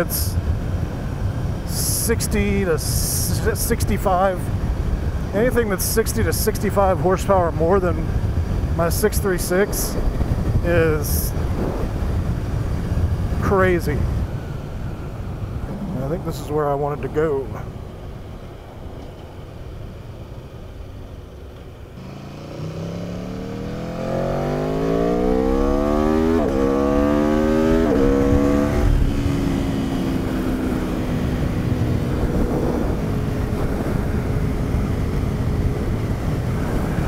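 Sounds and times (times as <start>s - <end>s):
wind noise: 0.0s - 20.2s, 22.9s - 37.0s
motorcycle engine accelerating: 22.0s - 37.0s.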